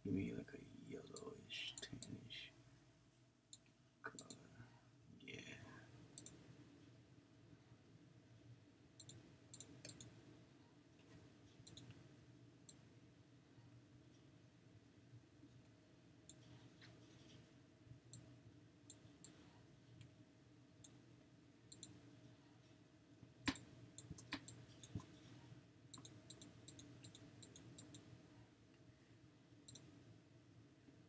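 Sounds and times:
computer mouse clicks: 3.5 - 4.4, 6.2 - 6.4, 9.0 - 10.1, 11.1 - 12.0, 21.7 - 22.0, 23.4 - 25.2, 25.9 - 28.1, 29.7 - 29.9.

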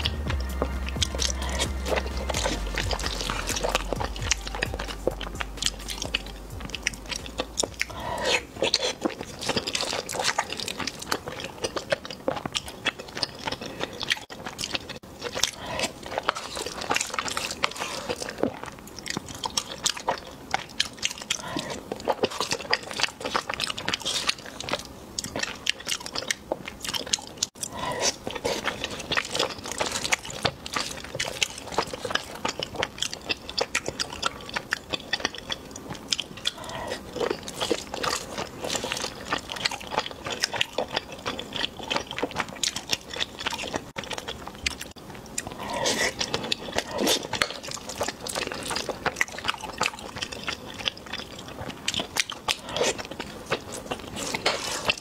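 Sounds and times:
person chewing and eating: 0.0 - 55.0.

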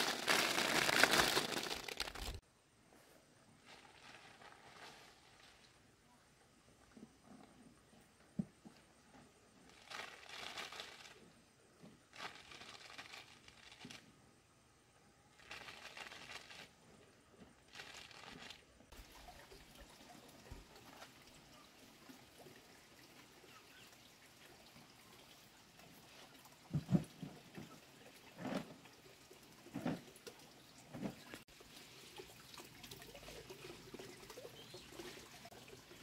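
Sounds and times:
dried pieces poured onto tarp: 0.0 - 2.4, 3.6 - 5.8, 15.4 - 16.7.

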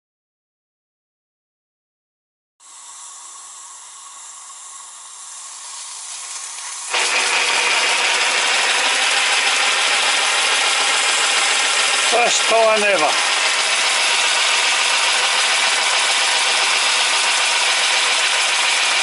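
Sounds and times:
loud rush of steam: 2.6 - 8.0
steam locomotive hissing: 2.6 - 19.0.

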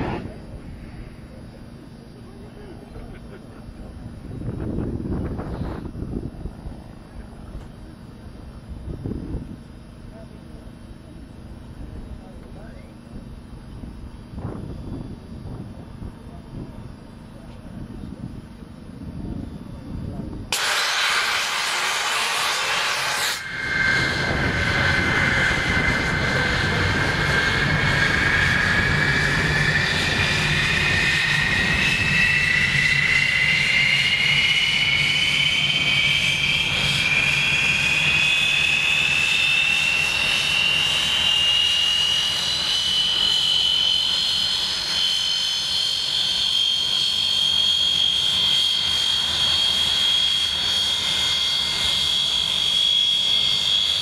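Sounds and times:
low rumble: 0.0 - 1.6, 23.4 - 38.2
jet engine whine rising: 0.0 - 54.0.

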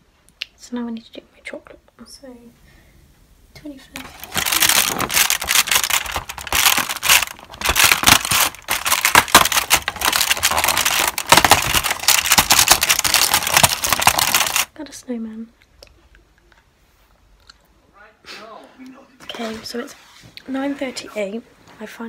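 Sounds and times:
cardboard tearing: 4.0 - 14.7
foil crinkling: 4.0 - 14.7.

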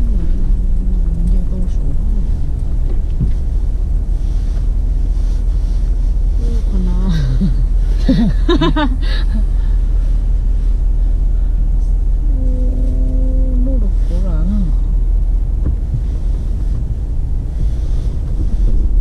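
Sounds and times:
person's voice: 0.0 - 2.4, 6.4 - 9.4, 12.3 - 14.8
truck engine rumbling: 0.0 - 19.0.

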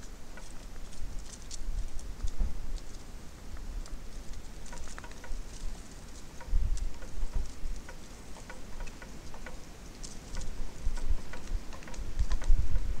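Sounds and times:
light ticking and tapping: 0.0 - 12.8
wind buffeting microphone: 0.9 - 2.9, 6.4 - 8.0, 10.3 - 13.0.

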